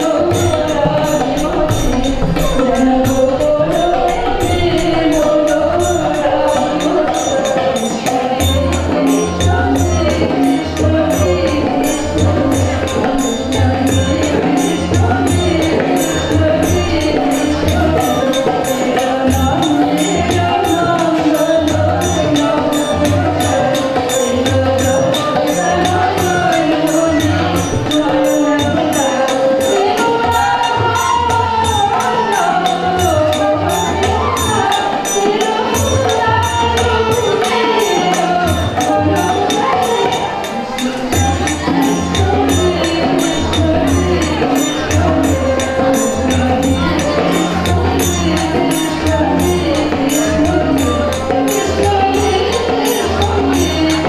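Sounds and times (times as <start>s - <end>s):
high metallic strikes: 0.0s - 20.1s
harmonium: 0.0s - 54.0s
percussion beat: 0.0s - 54.0s
woman singing: 0.0s - 54.0s.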